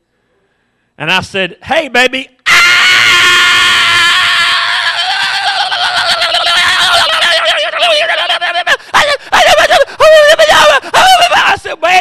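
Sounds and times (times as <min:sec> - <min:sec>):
man's falsetto shriek: 0:02.5 - 0:11.4.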